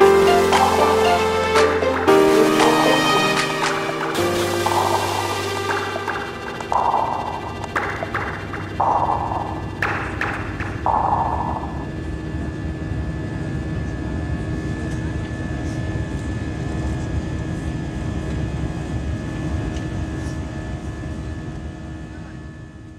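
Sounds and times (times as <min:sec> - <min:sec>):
thin steady whine: 0:00.0 - 0:12.2.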